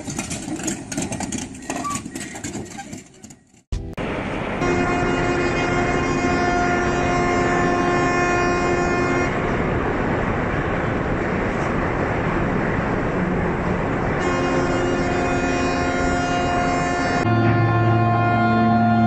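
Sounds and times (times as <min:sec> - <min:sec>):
street noise: 0:00.0 - 0:19.0
ship's horn blast: 0:03.8 - 0:09.4, 0:14.2 - 0:19.0.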